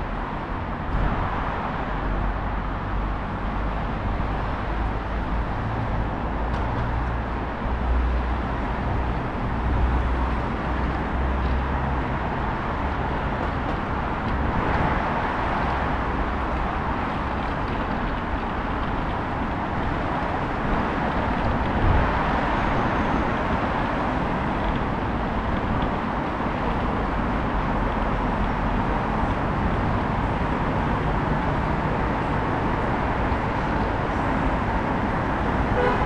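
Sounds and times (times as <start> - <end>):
city traffic hum: 0.0 - 36.0.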